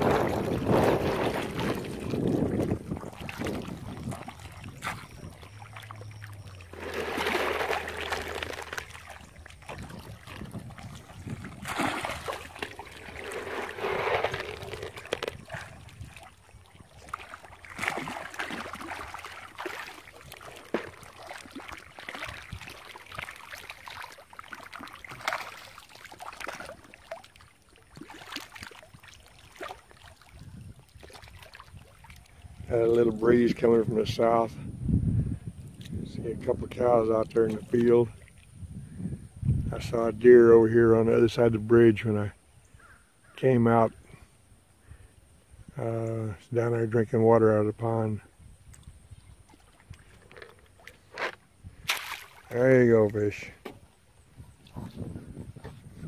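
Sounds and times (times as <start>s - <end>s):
fish splashing water: 0.0s - 32.5s, 48.7s - 52.6s.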